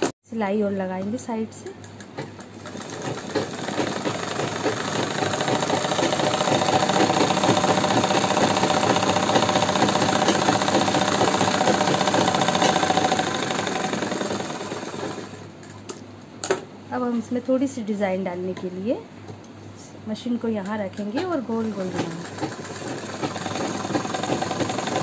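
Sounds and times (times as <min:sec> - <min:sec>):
sewing machine stitching: 0:02.2 - 0:15.4, 0:21.2 - 0:25.0.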